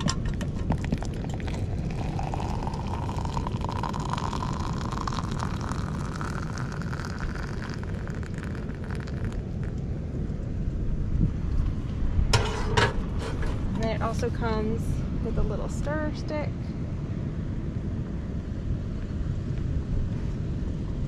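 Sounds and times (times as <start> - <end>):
low rumble: 0.0 - 21.0
water pouring into chamber: 0.5 - 9.8.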